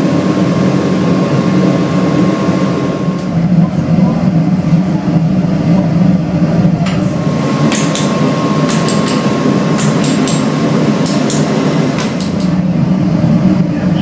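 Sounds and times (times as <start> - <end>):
low workshop drone: 0.0 - 14.0.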